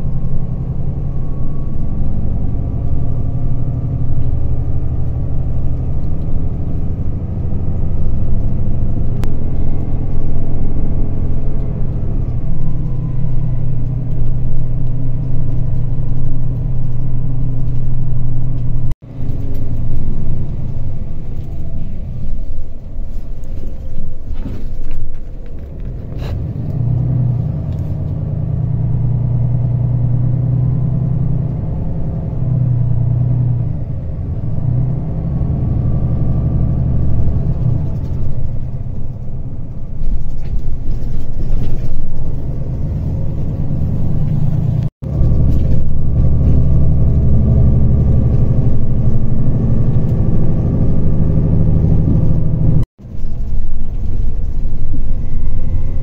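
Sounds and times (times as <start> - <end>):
vehicle road and engine rumble: 0.0 - 56.0.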